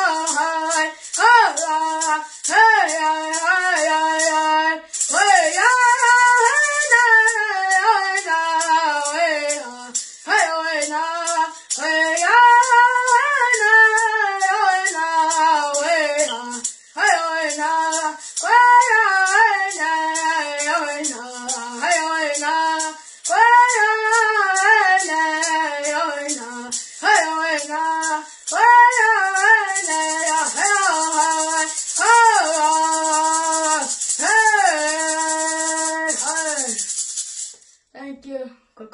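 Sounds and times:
handheld rattle beat: 0.0 - 37.9
boy singing: 0.0 - 38.9
breaths between phrases: 9.9 - 10.3, 23.0 - 23.3, 26.8 - 27.0.

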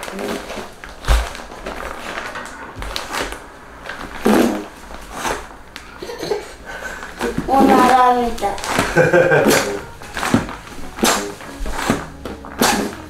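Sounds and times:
nylon fabric crinkling: 0.0 - 13.0
foot pump puffs of air: 8.7 - 13.0.

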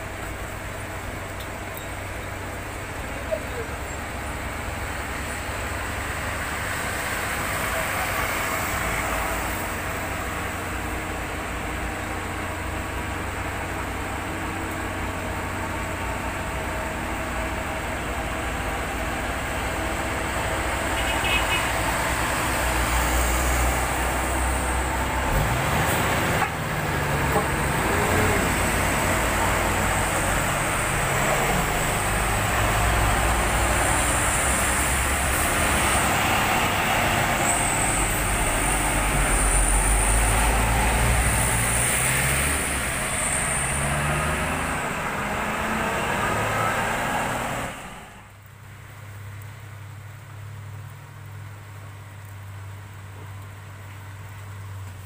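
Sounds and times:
diesel truck engines labouring: 0.0 - 55.0
rain on road: 0.0 - 55.0
tyres hissing on wet road: 0.0 - 55.0.

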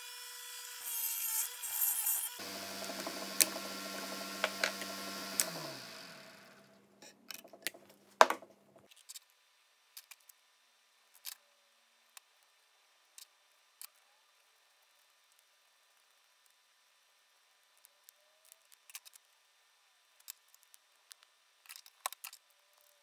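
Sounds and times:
bench grinder winding down: 0.0 - 6.8.

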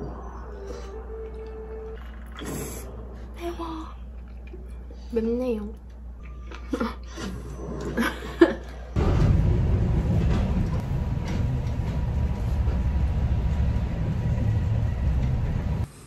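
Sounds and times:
bus rumbling from inside: 8.7 - 15.9.

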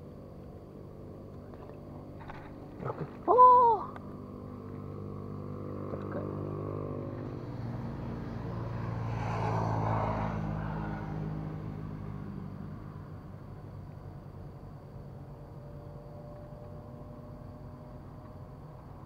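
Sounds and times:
vehicle engine driving past: 4.0 - 19.0.

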